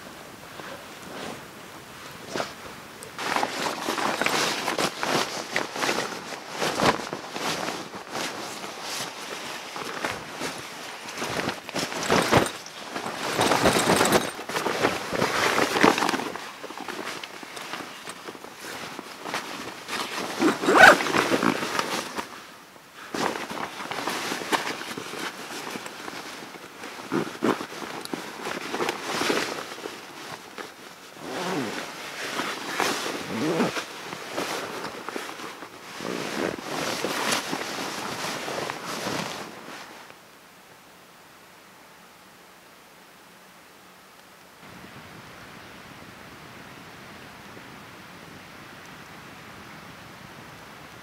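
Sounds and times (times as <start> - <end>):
sleeping bag fabric rustling: 0.0 - 1.6, 2.2 - 40.1.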